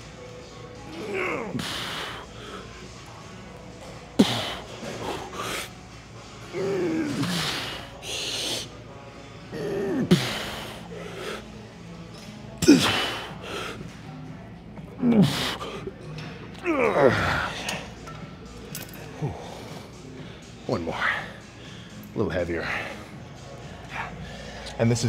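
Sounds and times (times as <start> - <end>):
man grunting: 0.9 - 1.8.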